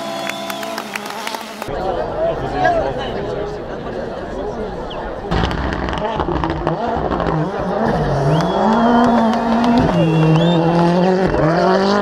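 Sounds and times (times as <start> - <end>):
rally car engine revving: 0.0 - 1.8, 5.3 - 12.0
sharp exhaust pops: 5.3 - 7.6.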